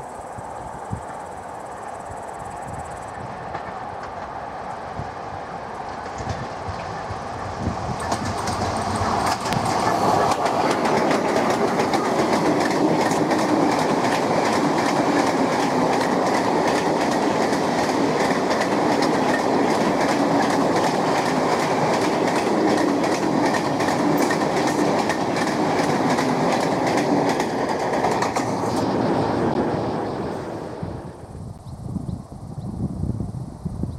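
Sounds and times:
train wheels rumbling on rail: 0.0s - 33.8s
clickety-clack over rail joints: 3.2s - 28.9s.

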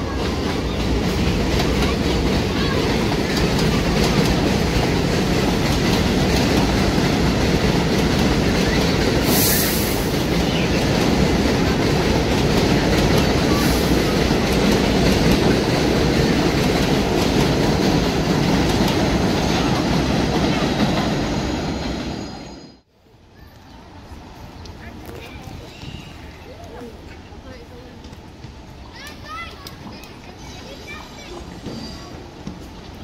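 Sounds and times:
train rumbling with wheel clatter: 0.0s - 22.9s, 23.8s - 33.0s
high hisses: 9.0s - 10.6s, 13.4s - 14.4s.

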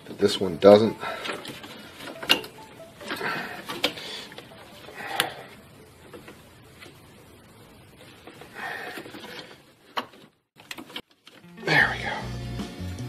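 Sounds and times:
rustling and scraping: 0.2s - 11.5s
sharp clicks of plastic parts: 9.0s - 11.4s.

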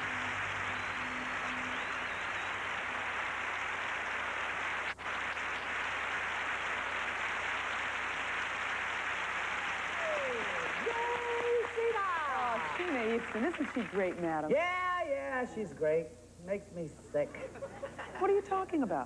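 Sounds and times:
audience applauding: 0.0s - 14.5s.

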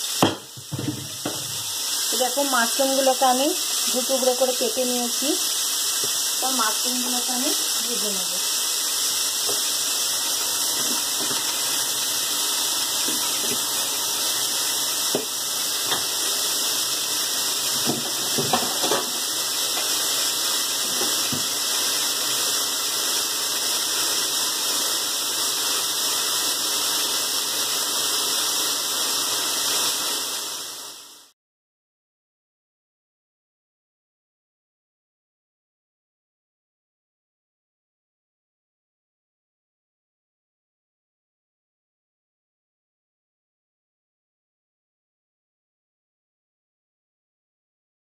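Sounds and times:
mushrooms sizzling in hot oil: 0.0s - 31.4s.

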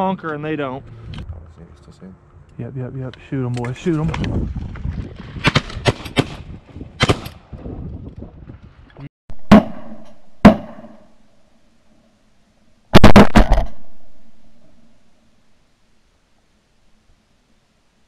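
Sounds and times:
shotgun shots echoing: 7.0s - 7.4s, 9.4s - 11.2s, 12.9s - 14.9s.

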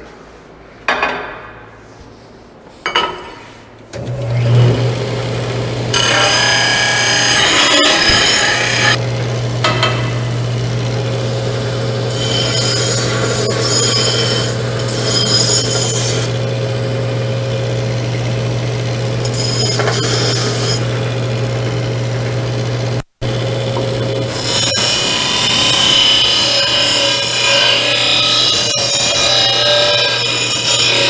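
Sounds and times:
disc sander humming: 4.0s - 31.0s
steel grinding against disc: 5.9s - 9.0s, 11.0s - 17.3s, 19.1s - 21.1s, 24.2s - 31.0s.

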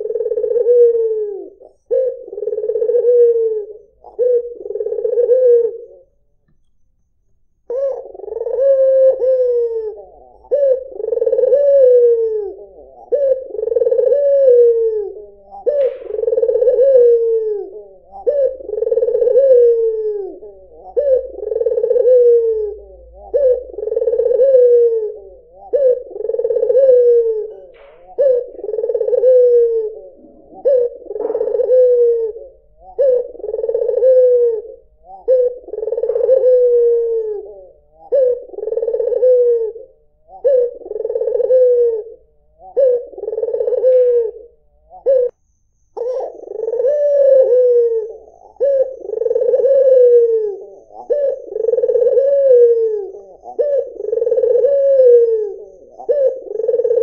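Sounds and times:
dove cooing: 0.0s - 6.2s, 7.6s - 57.0s.

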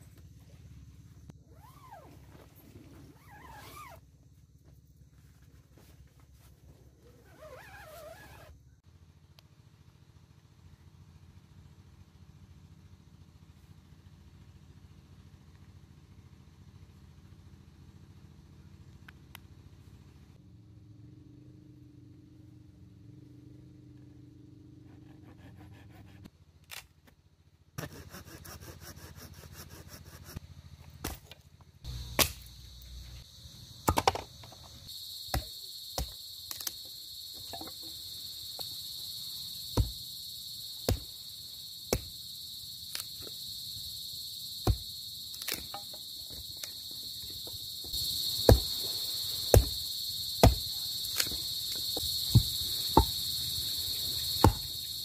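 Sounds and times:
insect chirring: 31.8s - 55.0s
hatchet chopping sticks: 49.5s - 49.8s, 50.4s - 53.2s.

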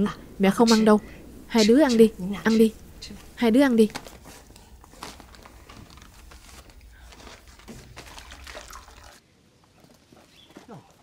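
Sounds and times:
water trickling into a cup: 8.0s - 9.2s.

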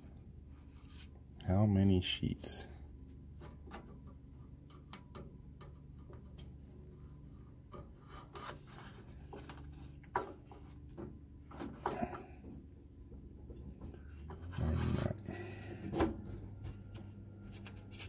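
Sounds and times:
faint scraping of paper: 8.0s - 9.9s, 16.7s - 18.0s.

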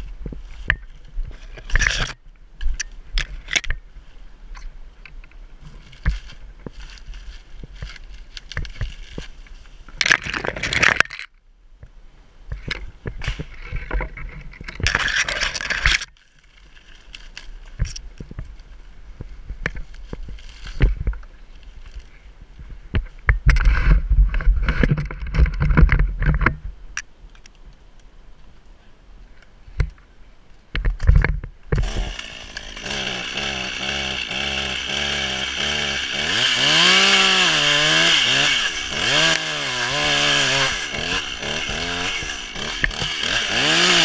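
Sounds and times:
dry palm fronds rustling: 5.5s - 10.9s, 15.2s - 22.8s, 31.7s - 44.0s.

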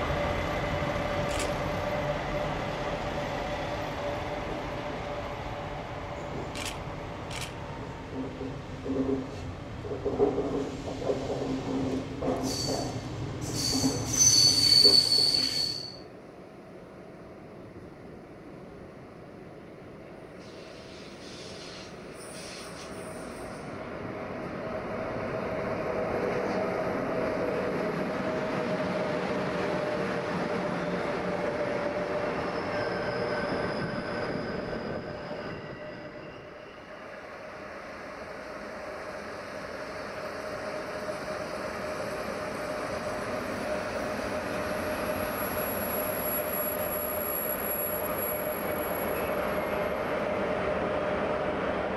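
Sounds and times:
train rumbling along rails: 0.0s - 51.9s
steel wheel squeal: 12.5s - 16.0s, 32.4s - 36.8s.

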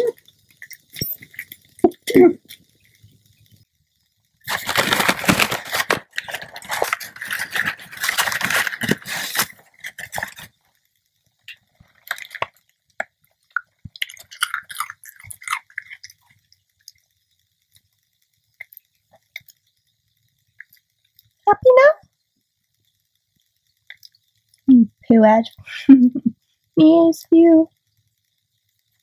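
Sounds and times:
crisps crunching: 4.4s - 10.6s, 11.5s - 12.6s, 13.5s - 16.4s
dog chewing crisp: 4.5s - 10.5s, 13.8s - 16.3s.

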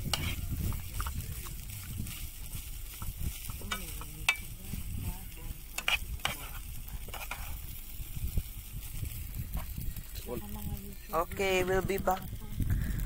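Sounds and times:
rice paddle scraping metal pot: 0.0s - 7.8s
rice frying: 0.0s - 13.0s.

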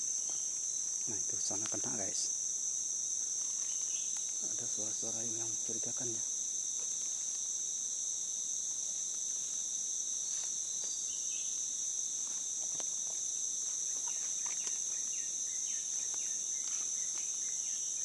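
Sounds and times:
forest insects droning: 0.0s - 18.0s
footsteps through undergrowth: 12.1s - 15.1s.

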